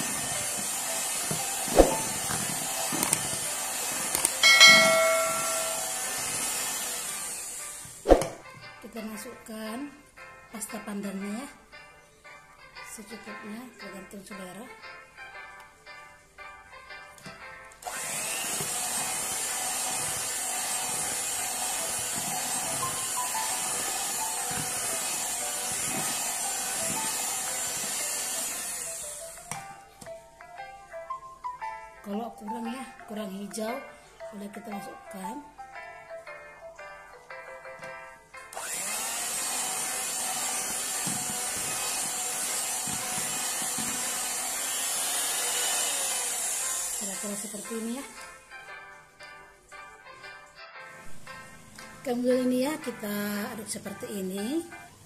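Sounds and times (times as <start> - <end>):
electric hand mixer whipping batter: 0.0 - 8.0, 17.8 - 29.4, 38.5 - 47.9
soft background music: 0.0 - 55.0.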